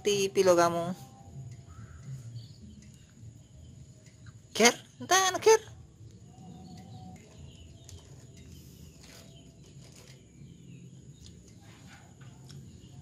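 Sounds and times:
faint bird chirps: 0.0s - 13.0s
low steady hum: 0.0s - 13.0s
soft clicks: 2.7s - 3.2s.

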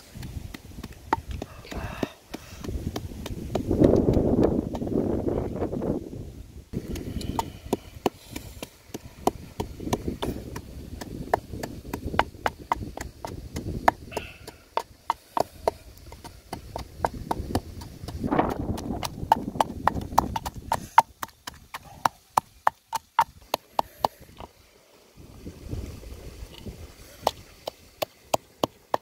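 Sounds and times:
wooden pestle pounding in mortar: 0.0s - 4.9s, 6.8s - 24.2s.

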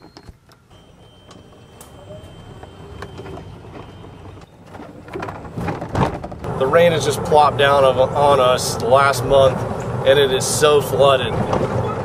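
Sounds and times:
thin high whine: 0.0s - 4.5s
golf cart driving: 0.4s - 12.0s.

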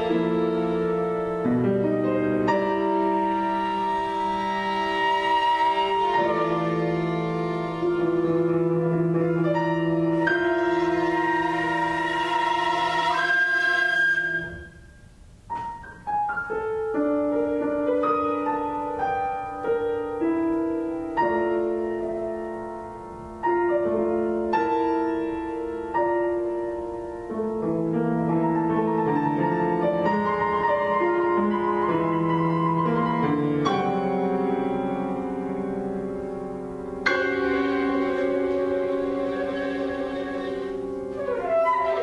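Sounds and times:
slow grand piano piece: 0.0s - 42.0s.

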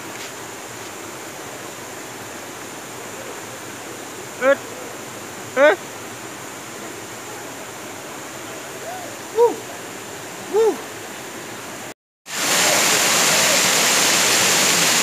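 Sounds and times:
stream rushing over rocks: 0.0s - 15.0s
short rising and falling calls: 4.4s - 4.6s, 5.6s - 5.8s, 10.5s - 10.8s
waterfall pouring into pool: 12.3s - 15.0s.

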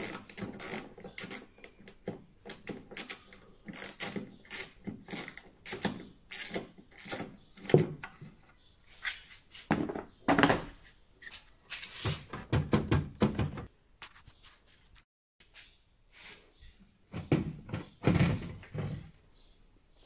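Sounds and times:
plastic knocks and thunks: 7.6s - 8.4s, 9.7s - 10.8s, 12.1s - 13.7s, 17.1s - 19.1s.

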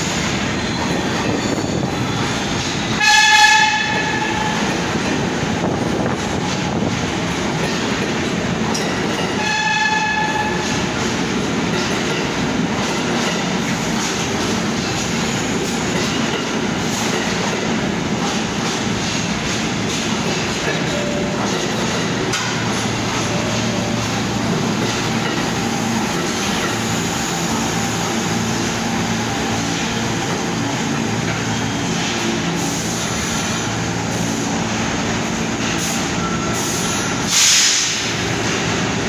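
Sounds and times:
low hum of train car: 0.0s - 39.0s
subway train wheels rumbling: 0.0s - 39.0s
air brake hiss: 36.6s - 38.2s.

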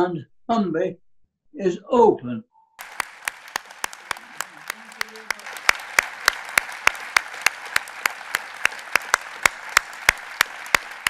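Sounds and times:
audience applauding: 2.8s - 11.0s
sharp nearby hand claps: 2.8s - 11.0s.

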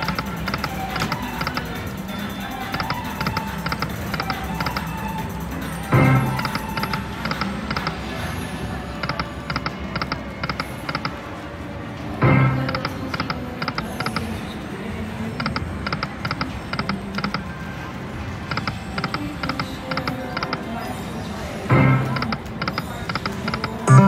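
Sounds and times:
slot machine electronic ticks: 0.0s - 8.3s, 8.9s - 11.2s, 12.2s - 14.3s, 15.4s - 17.5s, 18.4s - 20.6s, 21.7s - 24.0s
slot machine music: 0.0s - 11.3s, 21.6s - 24.0s.

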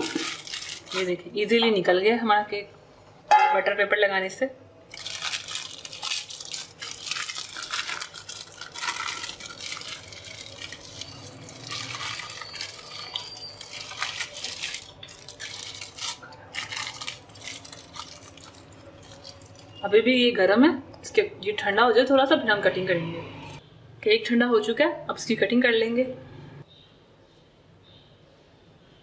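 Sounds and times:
paper crinkling: 0.0s - 1.2s, 4.9s - 19.8s.

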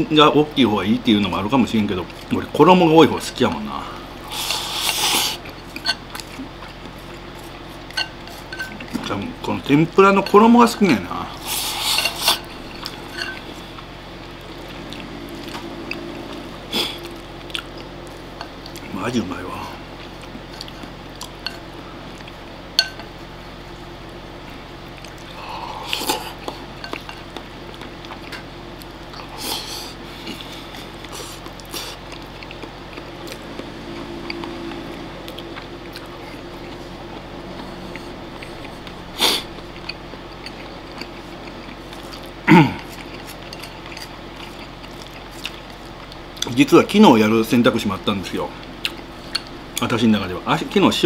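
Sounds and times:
low room hum: 0.0s - 51.0s
chewing: 4.2s - 9.2s, 11.4s - 18.9s, 24.9s - 46.6s, 48.8s - 49.8s.

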